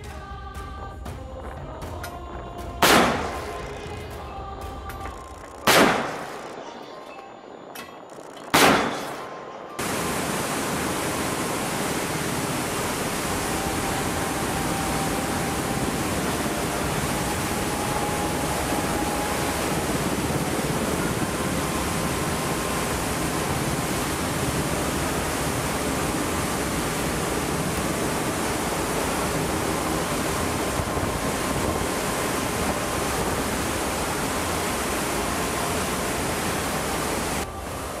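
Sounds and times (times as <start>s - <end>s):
deck gun shot: 2.8s - 3.6s, 5.7s - 6.4s, 8.6s - 9.3s
rushing wind and sea noise: 8.6s - 38.0s.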